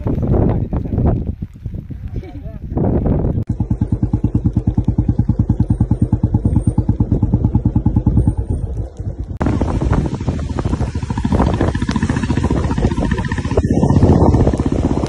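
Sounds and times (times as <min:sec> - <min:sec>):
wind and road rushing: 0:00.0 - 0:15.0
motorcycle engine puttering: 0:03.1 - 0:15.0.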